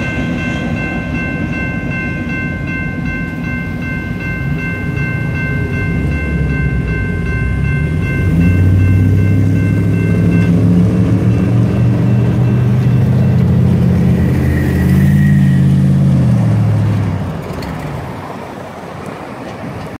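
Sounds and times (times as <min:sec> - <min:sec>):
road traffic noise: 0:00.0 - 0:20.0
deep engine drone: 0:03.5 - 0:17.0.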